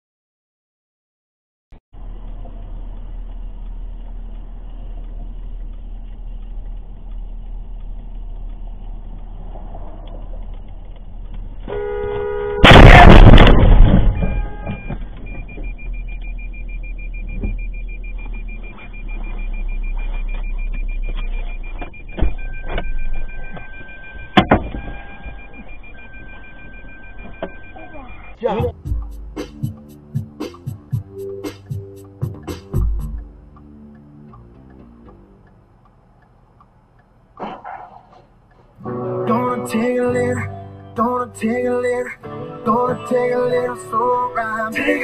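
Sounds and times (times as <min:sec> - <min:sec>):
road and engine noise inside car: 0:02.0 - 0:12.7, 0:13.6 - 0:29.3, 0:32.0 - 0:45.0
car horn blast: 0:11.6 - 0:15.0
car crash: 0:12.6 - 0:15.4
dashboard warning chime beeping: 0:14.2 - 0:29.0.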